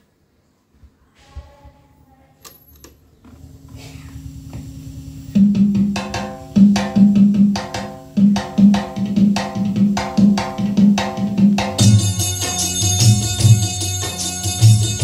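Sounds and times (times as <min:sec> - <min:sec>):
tape hiss: 0:00.0 - 0:08.6
percussion-led song: 0:05.4 - 0:15.0.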